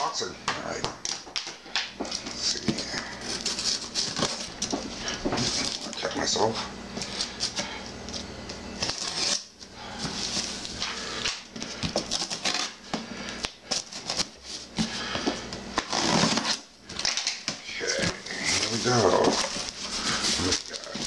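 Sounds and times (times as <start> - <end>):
packing tape ripping: 8.8 - 9.5, 10.1 - 12.8, 15.8 - 21.0
cardboard scraping and rustling: 15.8 - 17.1, 17.9 - 21.0.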